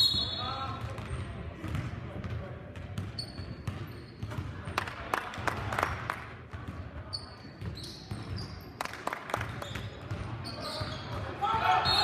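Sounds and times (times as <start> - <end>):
shoe squeaks: 3.2 - 4.4, 7.1 - 8.7, 9.5 - 12.0
murmur of voices echoing: 10.2 - 12.0.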